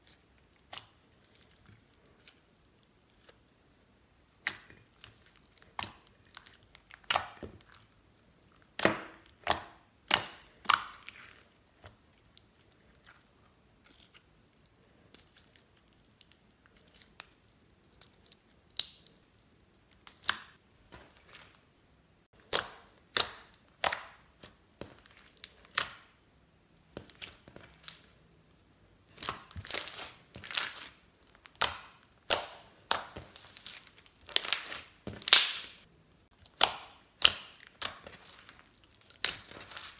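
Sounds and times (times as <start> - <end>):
slime popping and crackling: 28.9 - 39.9.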